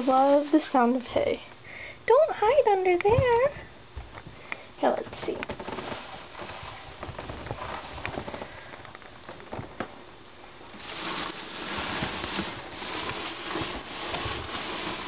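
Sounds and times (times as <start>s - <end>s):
dry hay rustling and crackling: 10.7s - 15.0s.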